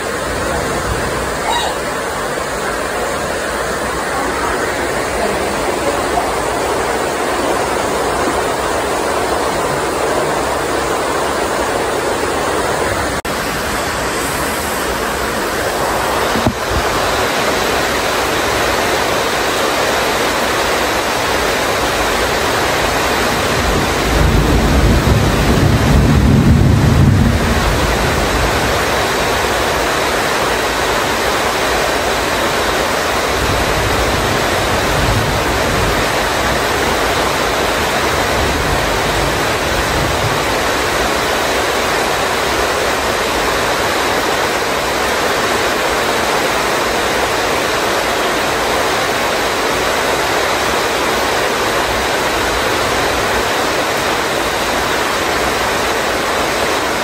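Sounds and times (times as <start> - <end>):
heavy rain pouring: 0.0 - 57.0
low rumble of thunder: 23.4 - 29.4.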